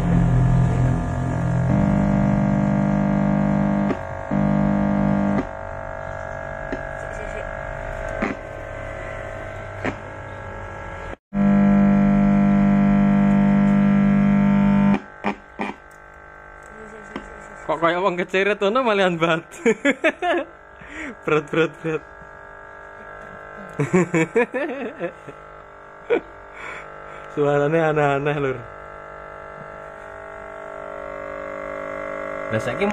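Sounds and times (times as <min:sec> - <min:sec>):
amplifier droning hum and buzz: 0:00.0 - 0:32.9.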